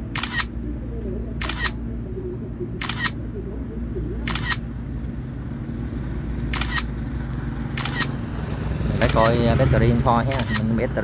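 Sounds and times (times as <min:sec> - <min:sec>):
steady low hum: 0:00.0 - 0:11.0
camera shutter double click: 0:00.2 - 0:00.5, 0:01.4 - 0:01.8, 0:02.8 - 0:03.2, 0:04.3 - 0:04.6, 0:06.5 - 0:06.9, 0:07.8 - 0:08.1, 0:10.3 - 0:10.7.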